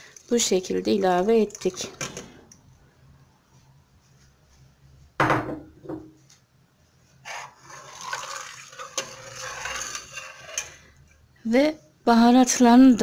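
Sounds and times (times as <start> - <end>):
ladle stirring soup in pot: 0.0 - 2.7, 7.2 - 11.3.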